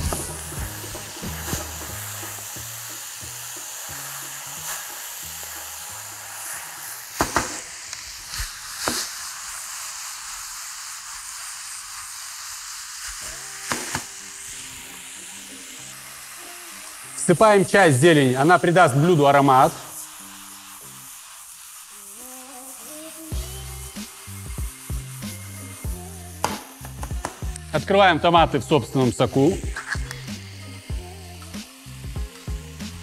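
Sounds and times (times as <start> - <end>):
food sizzling in a frying pan: 0.0 - 33.0.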